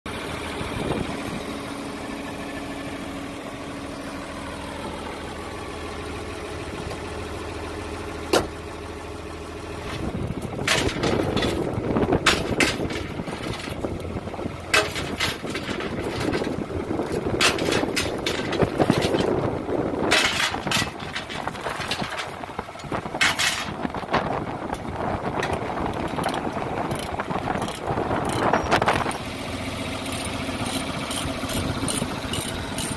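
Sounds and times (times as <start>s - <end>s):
engine idling: 0.1s - 32.9s
chains rattling against metal: 9.8s - 23.8s, 25.9s - 29.2s, 30.0s - 32.9s
sharp metal clank: 14.7s - 16.5s, 20.0s - 22.4s.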